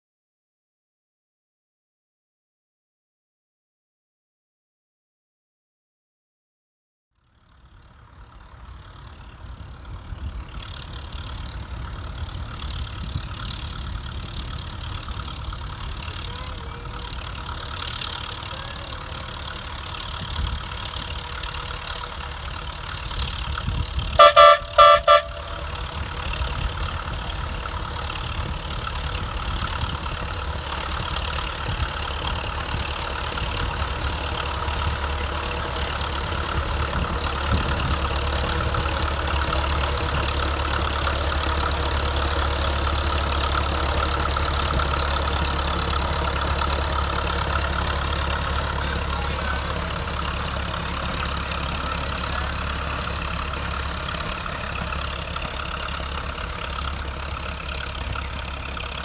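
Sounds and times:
locomotive engine running: 7.2 - 59.0
locomotive air horn toots: 24.2 - 26.2.

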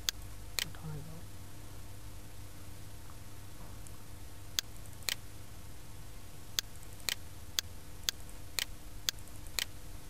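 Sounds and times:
low steady hum: 0.0 - 10.0
computer mouse clicking: 4.6 - 5.2, 6.6 - 9.7.

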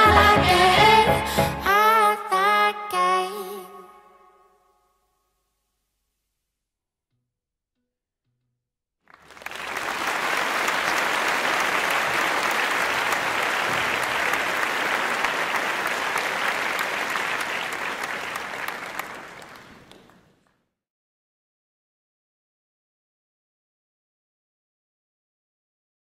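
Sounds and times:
applause: 9.1 - 20.6.

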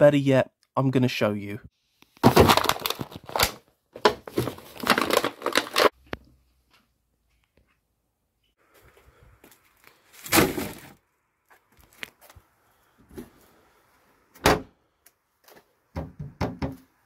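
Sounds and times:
packaging rustling into bin: 2.2 - 5.9.

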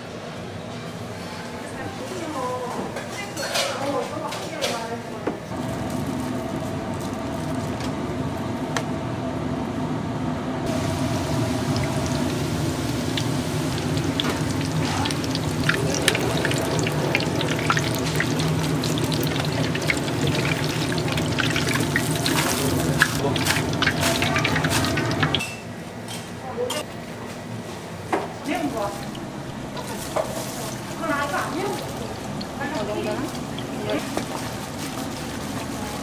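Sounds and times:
food deep-frying in oil: 10.7 - 25.6, 28.5 - 36.0.

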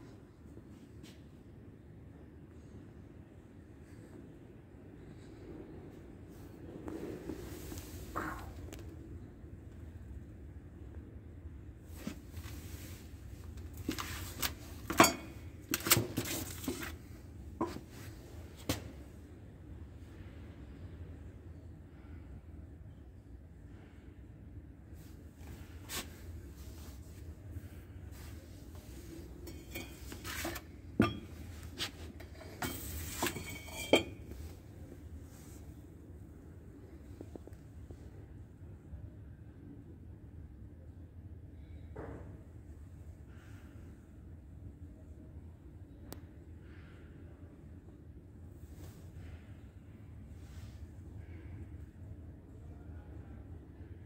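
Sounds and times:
steady low hum: 1.7 - 41.9
metallic clinks and knocks: 13.9 - 16.0, 32.2 - 34.4
scraping rustles: 28.1 - 34.6.

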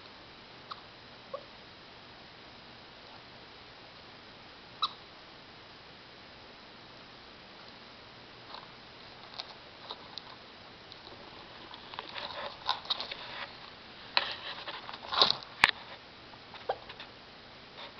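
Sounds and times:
quiet chirping: 0.0 - 1.7, 3.0 - 5.8
soft scratching and rustling: 8.4 - 17.2.

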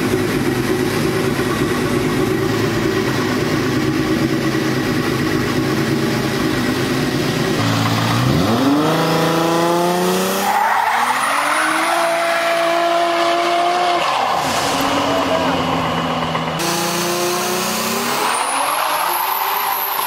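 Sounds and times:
car engine idling and revving: 0.0 - 20.0
tyre squeal: 10.2 - 15.6, 18.0 - 20.0.

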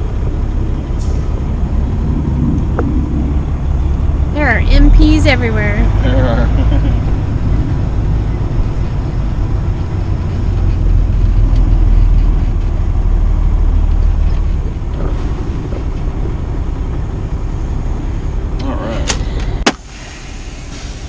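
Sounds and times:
truck diesel engine rumbling: 0.0 - 21.0.

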